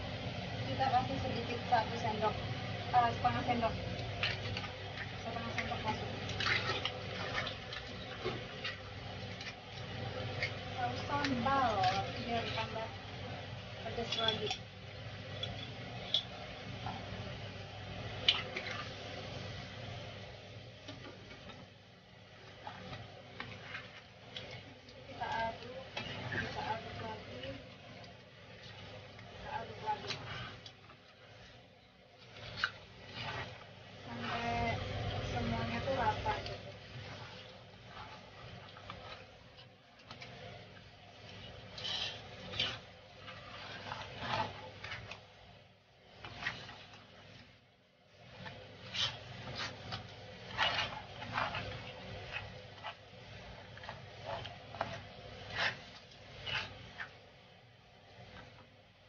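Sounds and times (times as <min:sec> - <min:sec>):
spatula scraping a wok: 0:18.1 - 0:19.4, 0:22.4 - 0:27.6, 0:28.5 - 0:47.4, 0:48.1 - 0:57.3.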